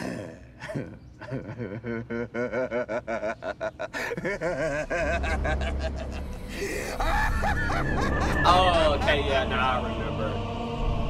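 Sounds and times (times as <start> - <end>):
person's pitched breaths or cries: 3.9 - 4.3, 6.2 - 7.5
low rumble: 4.2 - 11.0.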